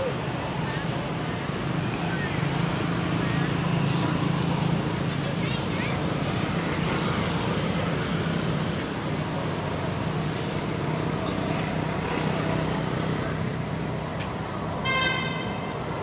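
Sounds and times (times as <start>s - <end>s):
low hum of distant traffic: 0.0s - 16.0s.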